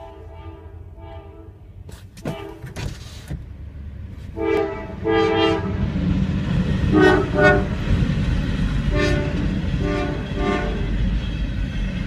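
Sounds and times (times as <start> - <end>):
locomotive horn blasts: 0.0 - 2.8, 4.3 - 5.8, 6.9 - 7.8, 8.9 - 10.9
train rumble: 0.0 - 12.0.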